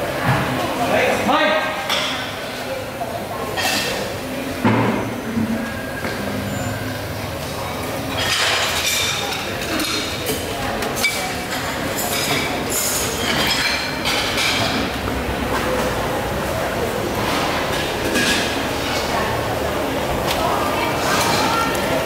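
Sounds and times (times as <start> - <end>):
dishes and utensils clinking: 3.4 - 6.8, 7.4 - 16.0, 17.2 - 19.4, 20.2 - 22.0.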